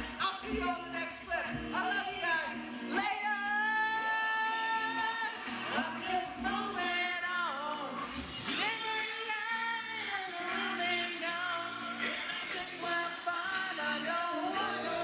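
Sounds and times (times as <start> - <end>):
backing music: 0.0 - 15.0
man singing into a microphone: 0.0 - 15.0.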